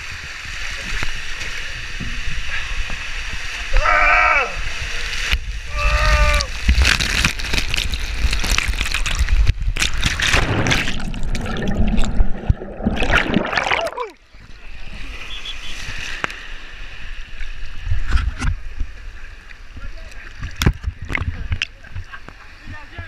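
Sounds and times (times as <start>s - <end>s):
water rushing in slide tube: 0.0s - 19.0s
heavy splashing into pool: 9.9s - 14.2s.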